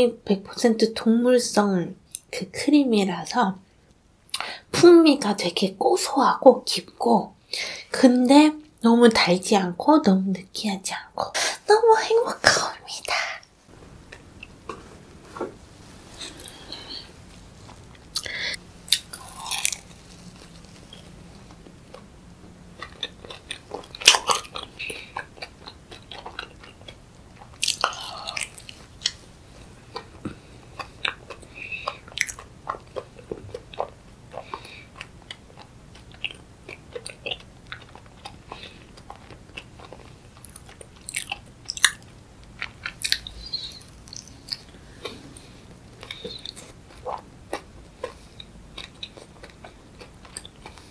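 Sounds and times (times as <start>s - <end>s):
person biting and chewing: 16.2s - 22.1s, 22.7s - 29.2s, 29.8s - 45.2s.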